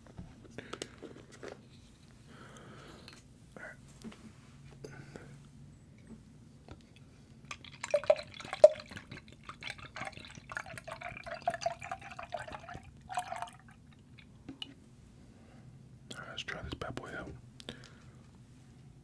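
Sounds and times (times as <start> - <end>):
juice glugging into a glass: 7.5 - 14.8.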